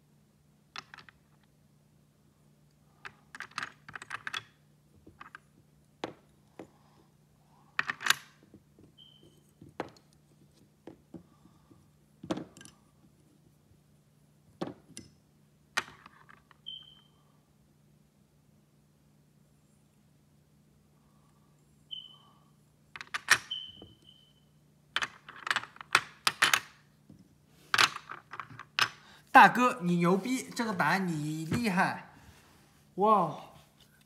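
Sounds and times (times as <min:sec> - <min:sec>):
plastic puzzle pieces clicking: 0:03.1 - 0:05.4, 0:25.0 - 0:26.8.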